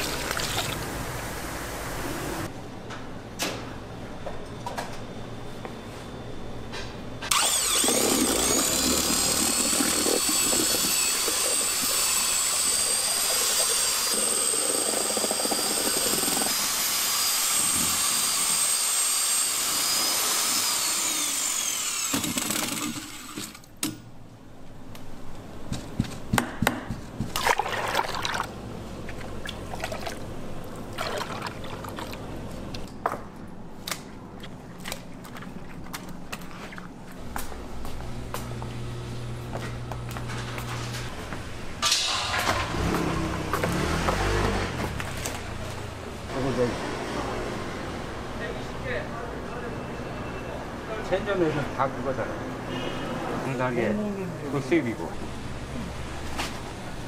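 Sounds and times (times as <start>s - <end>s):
electric drill motor whining: 7.3s - 23.5s.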